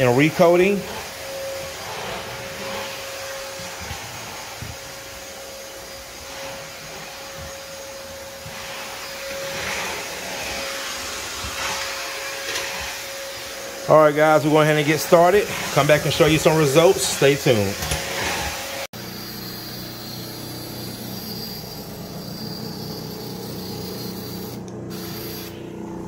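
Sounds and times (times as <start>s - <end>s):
footsteps on hardwood floor: 0.8s - 13.5s
motor running with hum: 19.0s - 26.0s.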